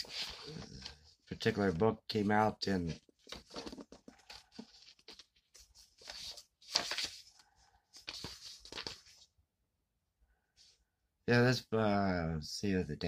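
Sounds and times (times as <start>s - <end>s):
book pages turning: 0.0s - 9.3s.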